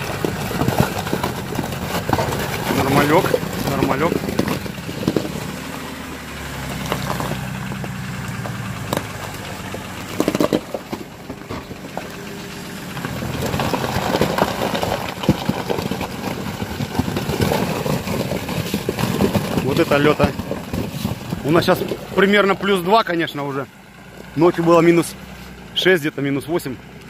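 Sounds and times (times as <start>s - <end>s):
sharp cracks and knocks: 0.0s - 6.1s, 6.7s - 12.3s, 12.9s - 22.5s
engine running at low revs: 0.0s - 27.0s.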